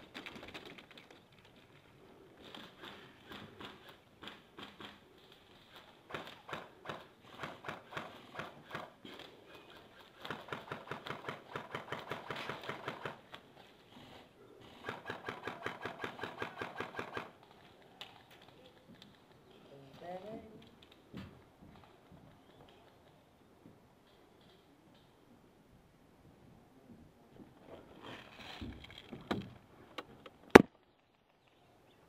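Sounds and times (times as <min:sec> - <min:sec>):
airsoft guns firing: 0:06.1 - 0:09.0, 0:10.1 - 0:13.2, 0:14.8 - 0:17.4.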